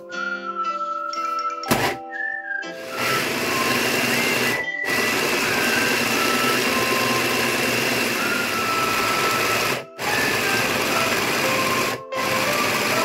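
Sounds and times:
electric food chopper running: 2.8s - 13.0s.

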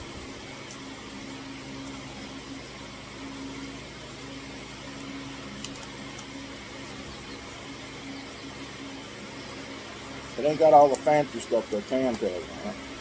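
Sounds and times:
machine hum with hiss: 0.0s - 13.0s.

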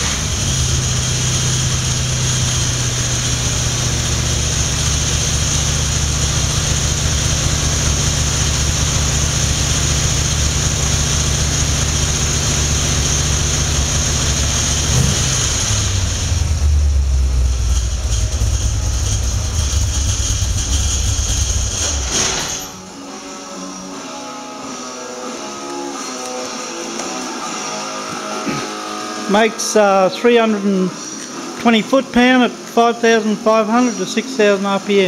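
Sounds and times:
engine running on a dyno: 0.0s - 23.0s.

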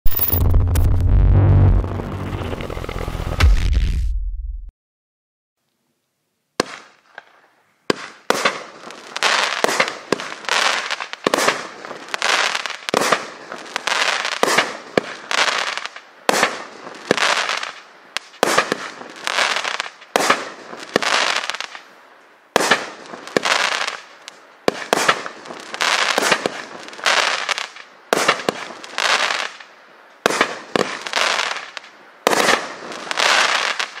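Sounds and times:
hissing crackling firework trails: 0.0s - 3.3s, 6.6s - 34.0s
fireworks shots firing: 0.1s - 2.0s, 7.9s - 21.7s, 22.6s - 24.0s, 24.7s - 29.6s, 30.2s - 34.0s.

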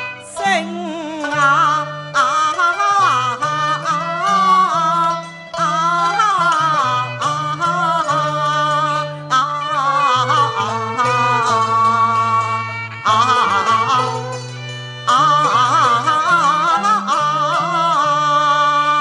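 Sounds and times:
high wavering opera singing: 0.0s - 11.2s.

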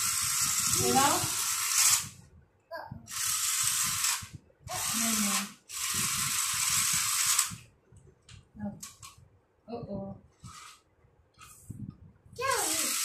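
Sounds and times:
toy train motor whirring: 0.0s - 2.2s, 3.1s - 7.6s, 10.4s - 10.8s, 12.4s - 13.0s.

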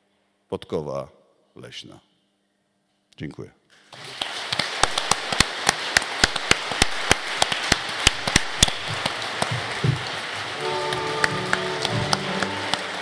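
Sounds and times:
audience applauding: 3.9s - 13.0s
single claps close by: 4.2s - 10.2s.

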